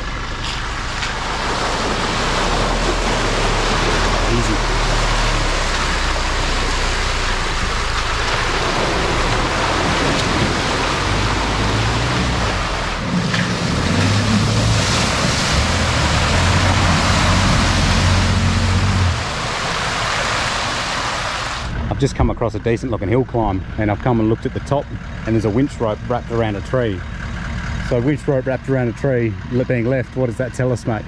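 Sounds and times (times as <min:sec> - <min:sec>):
engine droning: 0:00.0 - 0:31.0.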